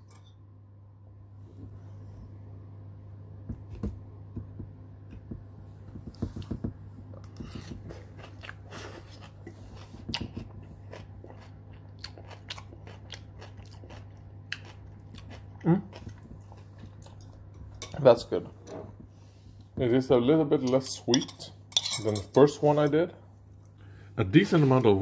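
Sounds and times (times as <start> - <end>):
steady low hum: 0.0 - 25.0
person chewing crunchy cabbage: 7.1 - 17.2.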